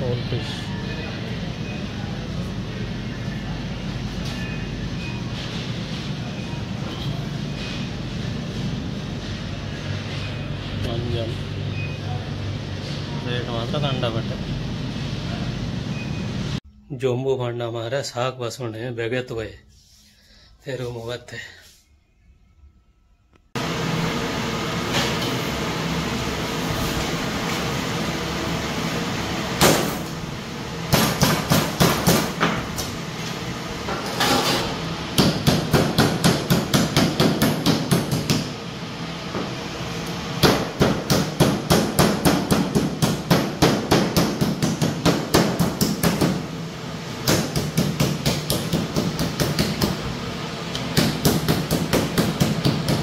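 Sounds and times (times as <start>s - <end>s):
steady background hum: 0.0s - 53.0s
meat mallet pounding meat: 35.2s - 38.5s, 40.4s - 46.4s, 47.2s - 50.0s, 50.9s - 53.0s.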